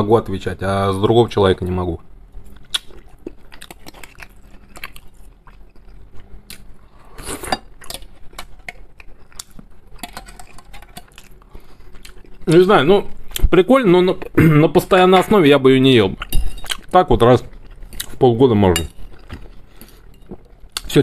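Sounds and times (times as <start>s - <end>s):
close chewing and mouth clicks: 2.4s - 13.5s, 16.2s - 18.2s.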